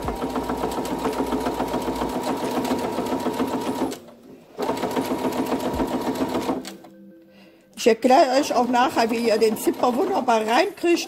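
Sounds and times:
electric sewing machine stitching: 0:00.0 - 0:06.8.

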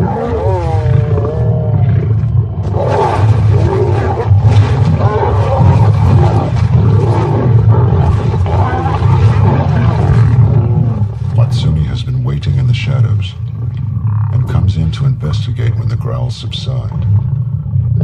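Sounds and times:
lions growling and snarling: 0:00.0 - 0:11.9, 0:12.8 - 0:14.7.

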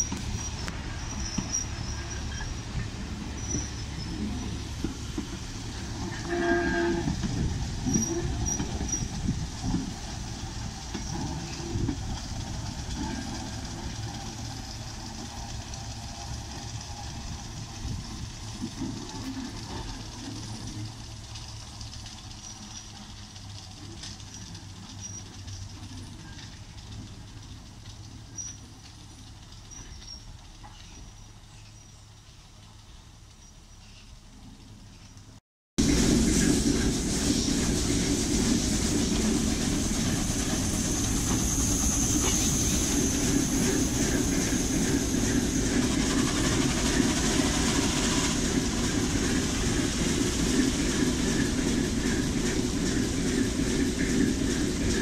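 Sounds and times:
train wheels clicking over rail joints: 0:00.0 - 0:55.0
short train whistle toot: 0:06.2 - 0:07.2.

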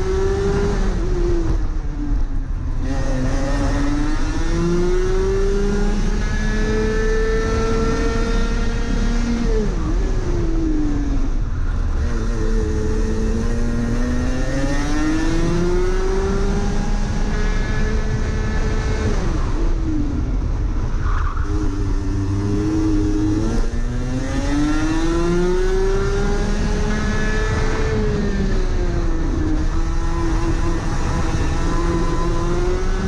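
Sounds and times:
wind and tyre noise: 0:00.0 - 0:33.0
kart engine revving: 0:03.0 - 0:10.8, 0:21.3 - 0:33.0.

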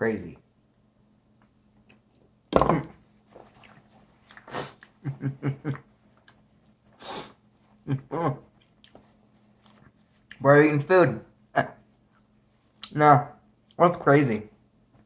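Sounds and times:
chewing: 0:03.4 - 0:05.0, 0:06.2 - 0:06.8, 0:08.5 - 0:10.4.

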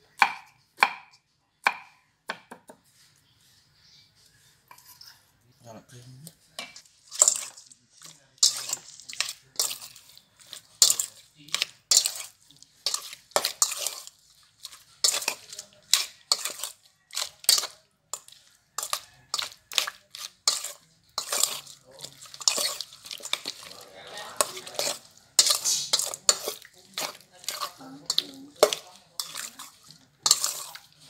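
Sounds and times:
wet squishing of meat: 0:08.0 - 0:31.0.

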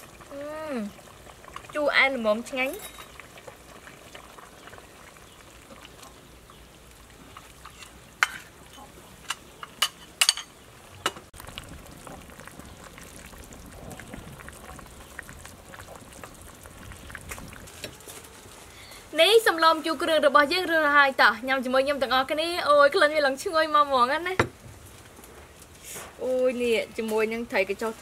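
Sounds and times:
metal ladle clinking on pot: 0:02.8 - 0:03.2.

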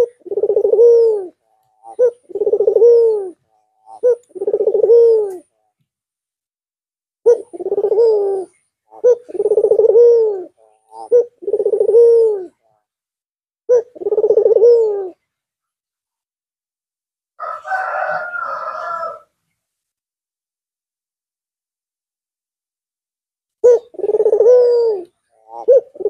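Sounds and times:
dove cooing: 0:00.0 - 0:05.6, 0:07.2 - 0:12.6, 0:13.7 - 0:15.2, 0:17.4 - 0:19.3, 0:23.6 - 0:26.0.

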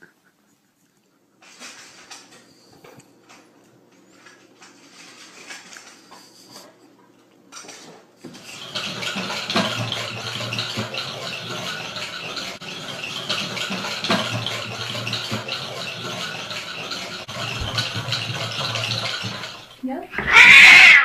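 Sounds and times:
continuous clattering: 0:01.4 - 0:06.8, 0:07.5 - 0:20.1.

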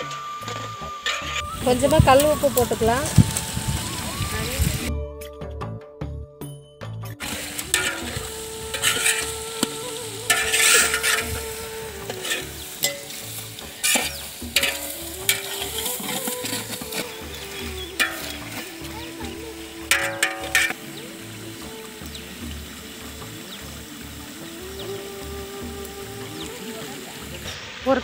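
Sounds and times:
food sizzling in a pot: 0:00.0 - 0:04.9, 0:07.2 - 0:28.0
metal ladle scraping a pot: 0:01.0 - 0:01.5, 0:07.2 - 0:20.9.

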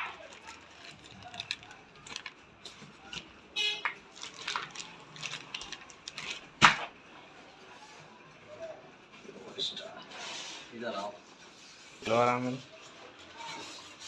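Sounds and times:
plastic packaging crinkling: 0:00.0 - 0:06.8
sharp crack: 0:06.2 - 0:07.0.

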